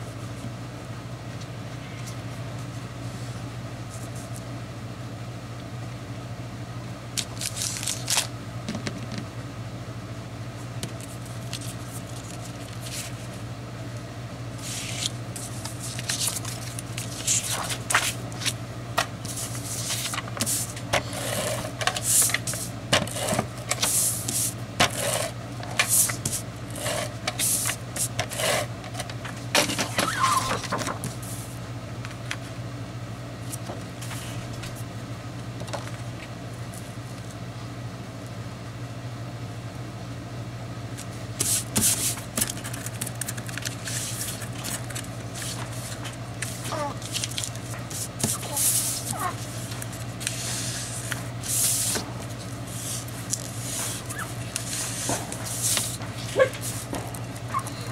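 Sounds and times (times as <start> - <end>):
steady low hum: 0.0 - 57.9
paper rustling and scraping: 7.2 - 8.3, 11.0 - 13.4, 14.6 - 18.6, 19.2 - 31.5, 41.0 - 57.5.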